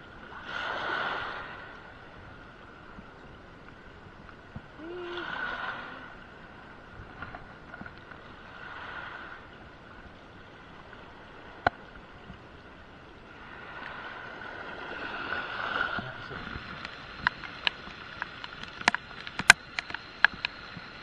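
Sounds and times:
heavy rain and wind hissing: 3.9s - 19.9s.

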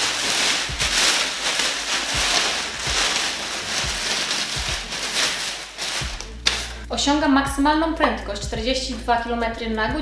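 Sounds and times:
plastic wrapping crinkling: 0.0s - 6.8s.

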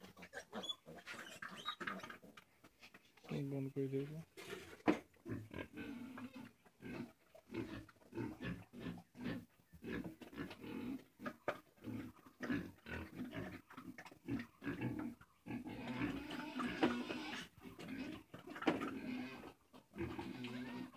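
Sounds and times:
pig grunting: 4.4s - 20.9s.

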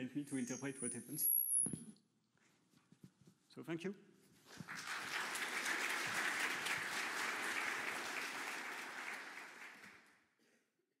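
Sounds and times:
audience applauding: 4.5s - 10.2s.

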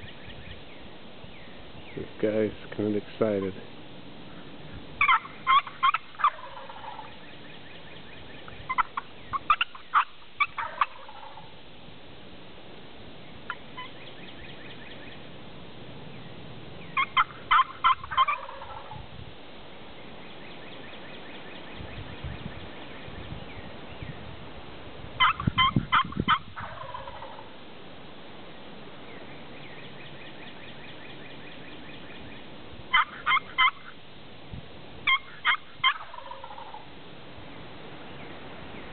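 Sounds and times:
turkey gobbling: 4.3s - 11.6s, 13.4s - 15.3s, 16.8s - 19.0s, 25.2s - 27.6s, 29.1s - 34.0s, 35.0s - 36.9s.

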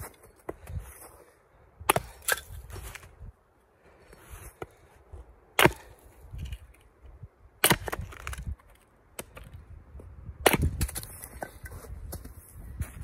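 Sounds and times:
axe splitting firewood: 1.8s - 3.1s, 5.5s - 6.8s, 7.6s - 9.6s, 10.4s - 11.7s.

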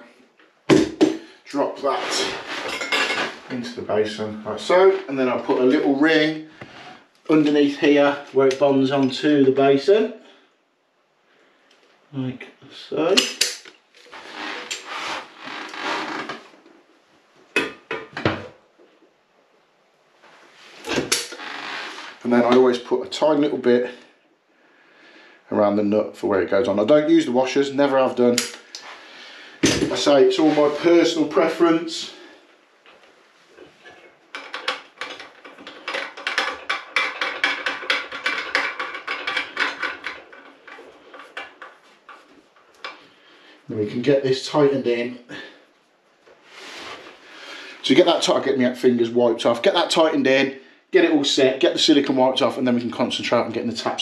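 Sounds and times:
sharp knocks: 0.7s - 1.3s
rubbing and scraping of fittings: 1.8s - 3.6s, 13.4s - 16.6s, 20.4s - 22.6s, 28.4s - 43.5s.

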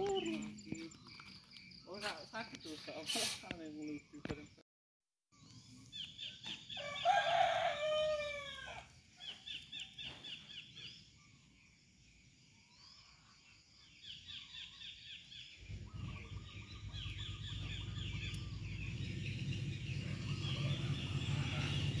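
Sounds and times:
rooster crowing: 6.7s - 8.9s, 19.9s - 22.0s
high bird chirps: 14.0s - 22.0s
low steady rumble: 15.6s - 22.0s.

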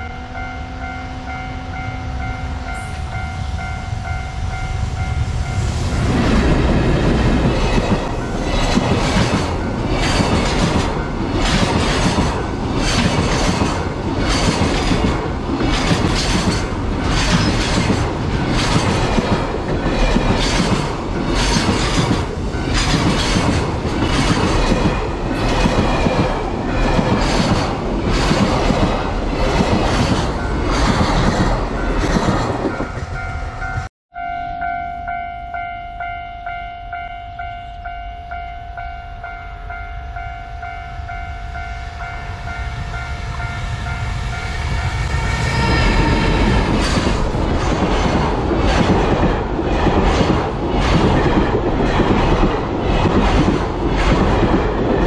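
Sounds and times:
level-crossing warning bell: 0.0s - 27.0s, 30.2s - 47.0s
freight train wagons rumbling: 0.0s - 34.4s, 41.0s - 55.0s
wheels clacking over rail joints: 6.7s - 33.2s.

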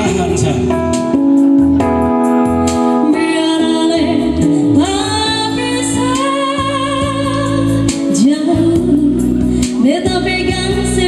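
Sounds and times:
instrumental backing music: 0.0s - 11.0s
woman singing into microphone: 2.8s - 11.0s.

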